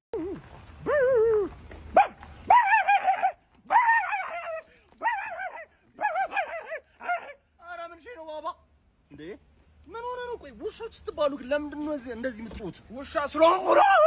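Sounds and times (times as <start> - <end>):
man imitating dog yelps: 0.8 - 7.4, 13.5 - 14.0.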